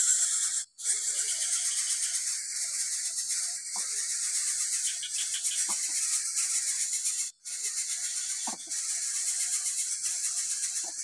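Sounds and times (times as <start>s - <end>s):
high-pitched insect buzzing: 0.0s - 11.0s.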